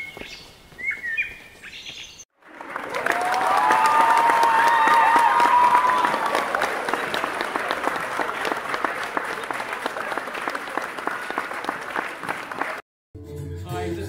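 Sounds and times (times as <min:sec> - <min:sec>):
crowd applauding and cheering: 0:02.4 - 0:12.8.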